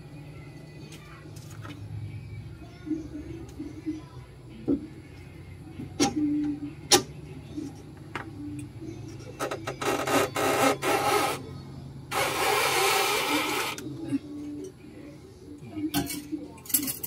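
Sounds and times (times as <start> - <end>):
metal scraping and rubbing: 9.0 - 11.5, 12.1 - 13.9.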